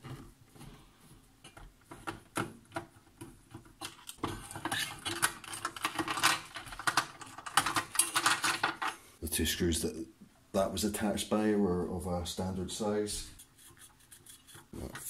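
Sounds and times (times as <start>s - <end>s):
clatter of parts being handled: 1.4s - 9.0s.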